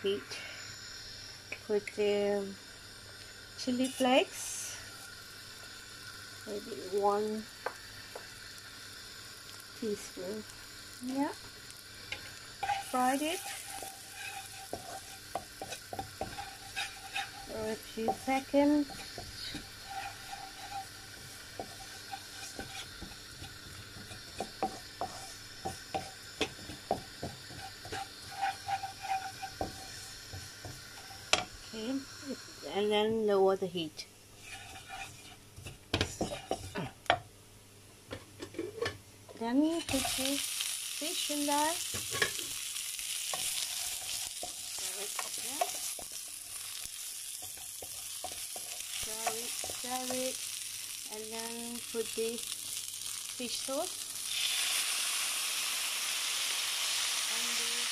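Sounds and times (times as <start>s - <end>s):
chili flakes sizzling in a pan: 0.0s - 57.9s
wooden spatula scraping a pan: 12.1s - 31.5s, 34.4s - 37.0s, 43.2s - 50.4s.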